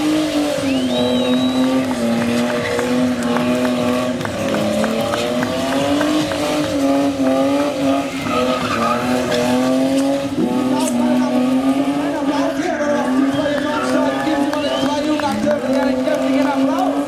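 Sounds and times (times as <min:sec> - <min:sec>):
car engine at high revs: 0:00.0 - 0:17.0
tyre squeal: 0:08.0 - 0:10.1.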